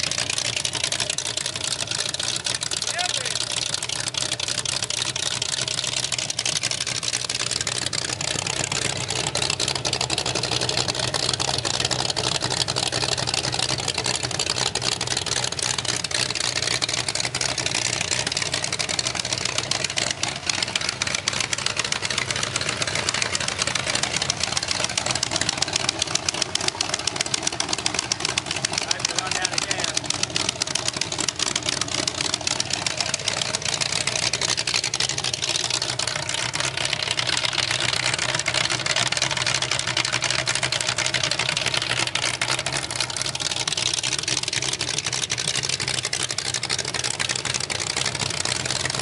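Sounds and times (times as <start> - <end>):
engine idling through open exhaust: 0.0 - 49.0.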